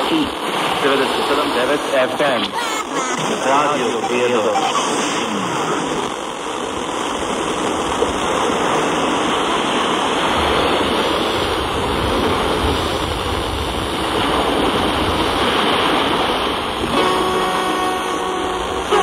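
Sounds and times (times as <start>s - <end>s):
radio static hissing: 0.0s - 19.0s
faint musical tones: 3.4s - 5.9s, 16.8s - 19.0s.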